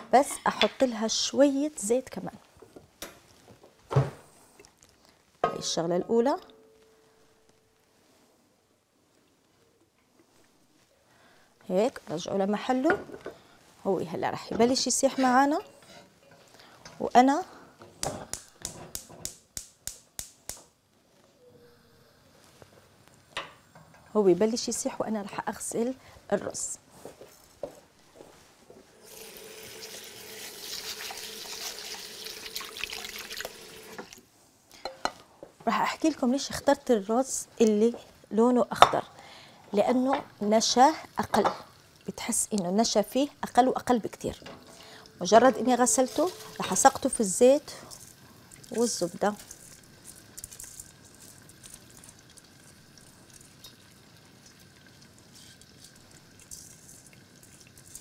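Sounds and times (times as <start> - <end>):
faint steady tone: 6.4 - 7.9
tap water running into a bowl: 29.0 - 34.2, 47.9 - 58.0
faint sizzling: 35.9 - 58.0.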